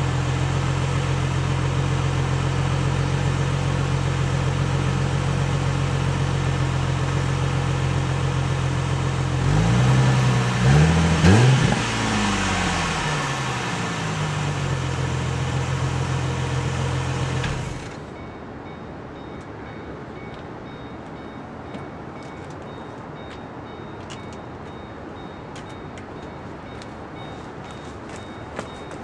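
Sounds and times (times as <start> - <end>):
car engine idling and revving: 0.0 - 18.1.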